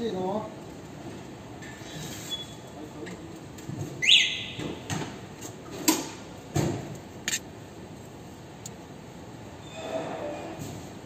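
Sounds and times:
short rising squeak: 0:09.6 - 0:10.5.

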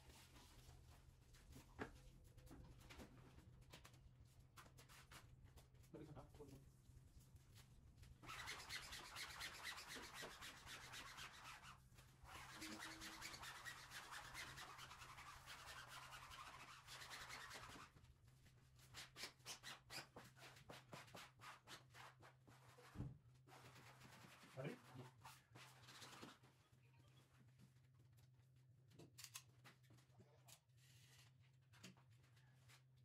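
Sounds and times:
cloth rubbing wallpaper: 0:08.2 - 0:18.0, 0:18.8 - 0:26.5.

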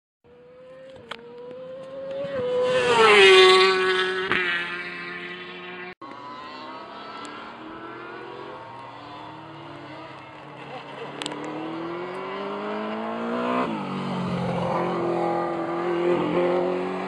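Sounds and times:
distant motorcycle accelerating: 0:00.3 - 0:17.0
motorcycle engine passing by: 0:00.3 - 0:17.0.

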